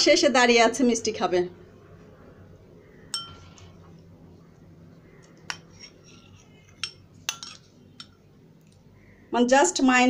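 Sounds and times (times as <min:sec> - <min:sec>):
spoon clinking against ceramic bowl: 0:03.1 - 0:03.6, 0:05.5 - 0:08.3.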